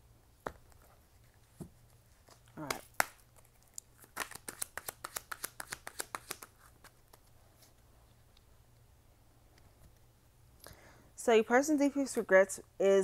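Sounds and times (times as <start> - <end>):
cards being shuffled: 2.2 - 7.8.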